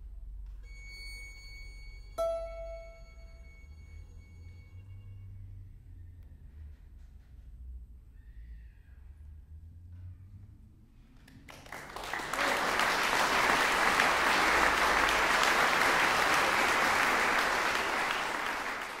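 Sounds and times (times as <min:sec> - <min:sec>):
audience applauding: 0:11.5 - 0:19.0.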